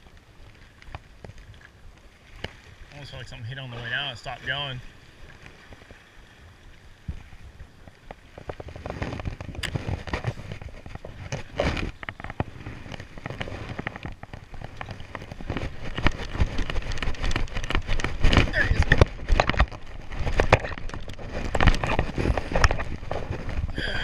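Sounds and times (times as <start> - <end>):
water splashing against boat: 0.0 - 24.0
crackling knocks: 7.0 - 23.8.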